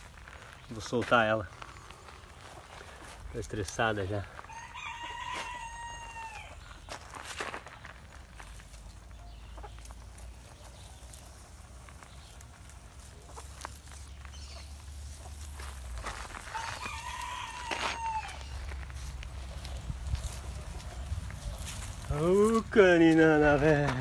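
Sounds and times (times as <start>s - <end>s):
rooster crowing: 4.4s - 6.6s, 16.4s - 18.6s.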